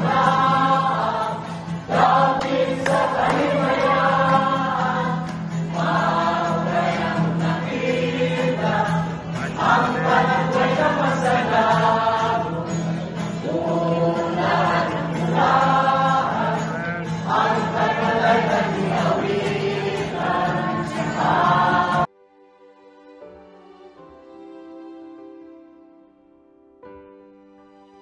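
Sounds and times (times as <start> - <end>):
acoustic guitar: 0.0 - 22.1
group of people singing: 0.0 - 22.1.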